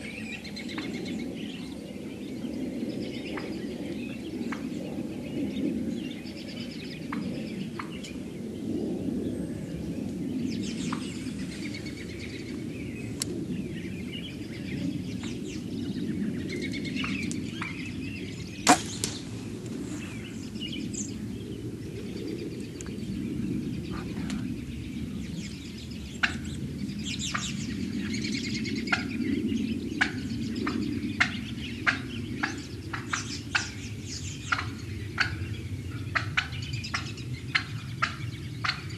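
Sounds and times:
steady low rumble: 0.0s - 38.9s
loud sharp crack: 18.6s - 19.4s.

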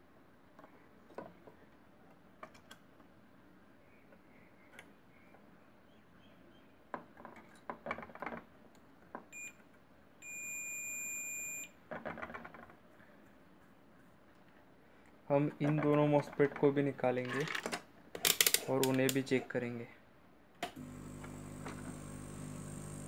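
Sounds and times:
multimeter beeping: 9.4s - 9.6s, 10.2s - 11.7s.

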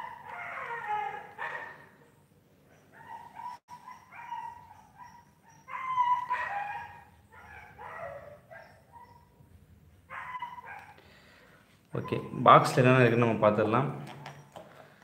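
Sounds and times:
dog whining and yelping: 0.0s - 11.0s.

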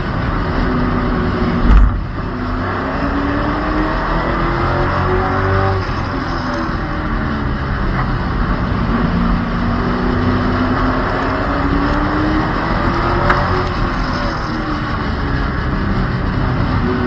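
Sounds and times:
race car engines accelerating: 0.0s - 17.0s
steady rush of noise: 0.0s - 17.0s
sharp click: 1.6s - 2.0s.

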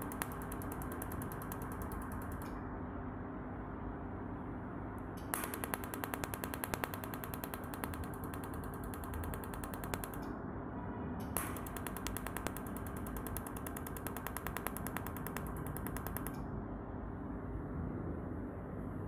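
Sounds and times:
laser welder clicking: 0.0s - 2.6s, 5.2s - 10.3s, 11.3s - 16.4s
steady machine hum: 0.0s - 19.0s.

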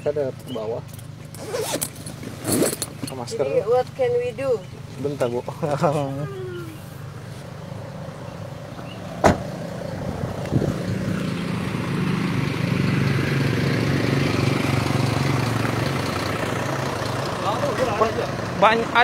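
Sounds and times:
vehicle engine running: 0.0s - 19.0s
car door shutting: 9.2s - 9.6s.

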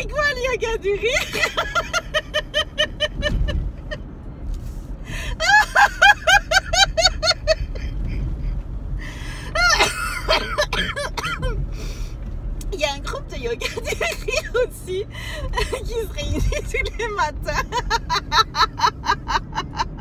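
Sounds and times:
car cabin hum: 0.0s - 20.0s
woman laughing hard: 1.1s - 4.0s, 5.2s - 8.1s, 9.5s - 11.5s, 17.5s - 20.0s.

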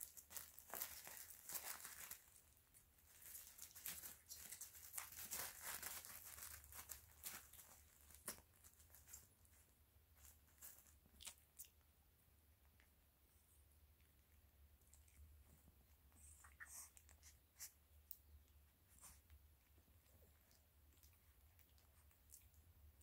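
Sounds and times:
crinkling of plastic pads: 0.0s - 11.4s.

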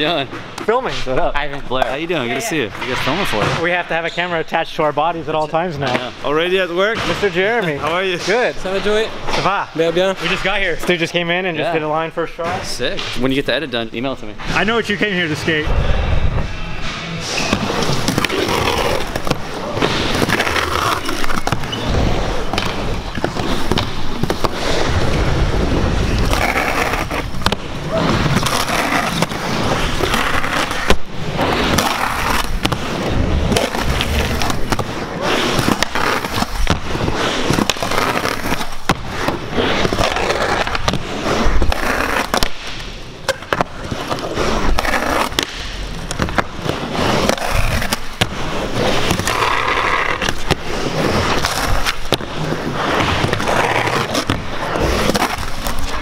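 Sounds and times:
skateboard wheels rolling on concrete: 0.0s - 16.6s, 17.2s - 56.0s
skateboard grinding on curb: 17.5s - 56.0s
skateboard pops and landings: 30.1s - 32.9s.

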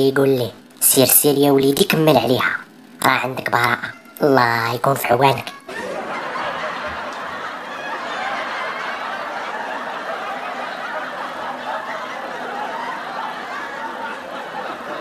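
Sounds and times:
laugh track: 3.2s - 15.0s.

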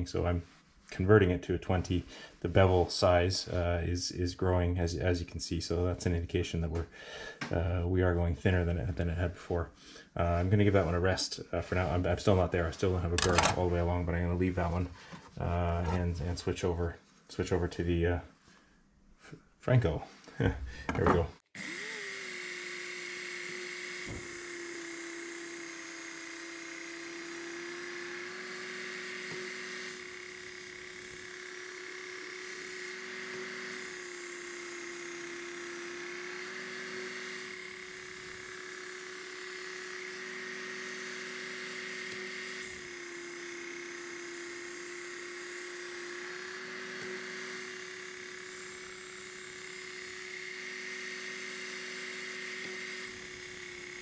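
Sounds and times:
belt sharpener motor humming: 13.2s - 13.6s, 21.5s - 54.0s.

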